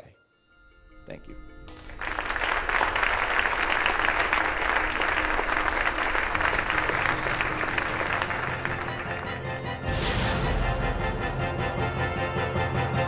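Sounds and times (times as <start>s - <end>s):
music: 0.0s - 13.0s
large audience applauding: 1.7s - 9.9s.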